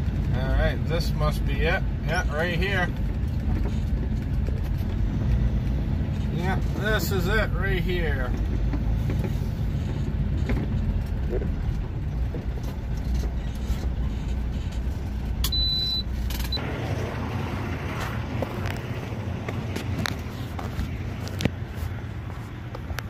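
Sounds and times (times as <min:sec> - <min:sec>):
diesel truck engine rumbling: 0:00.0 - 0:23.0
outdoor noise: 0:00.0 - 0:23.0
short high beep: 0:15.4 - 0:16.6.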